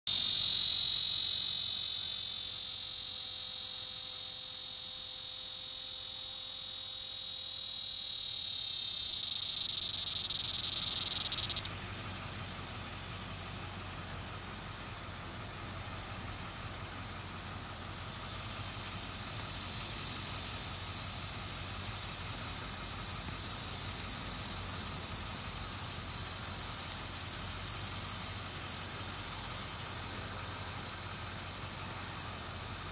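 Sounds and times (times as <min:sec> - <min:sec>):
cicada buzzing: 0:00.0 - 0:13.6, 0:17.2 - 0:32.9
faint steady hiss: 0:00.1 - 0:15.4.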